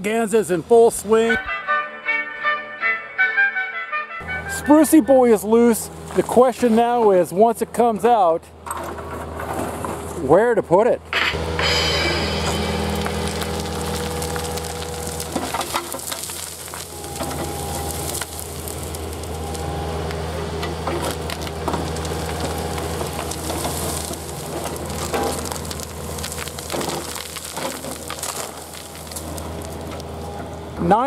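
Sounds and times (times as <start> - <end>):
excavator diesel engine under load: 11.3 - 31.0
roots cracking and snapping: 12.9 - 30.3.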